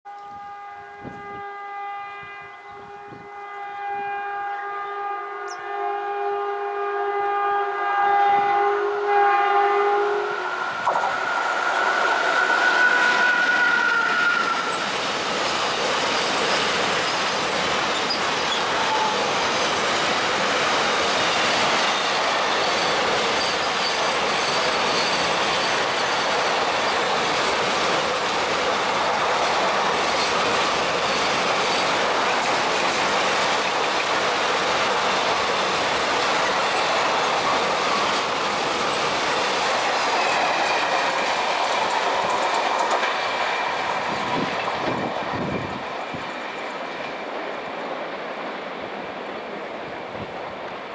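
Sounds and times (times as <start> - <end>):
train horn blast: 0.1 - 15.0
train passing whine: 0.1 - 50.9
train wheels clattering on rails: 10.8 - 50.6.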